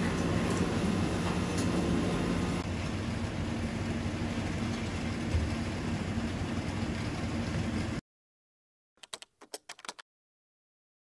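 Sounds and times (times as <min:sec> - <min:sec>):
machining center humming: 0:00.0 - 0:08.0.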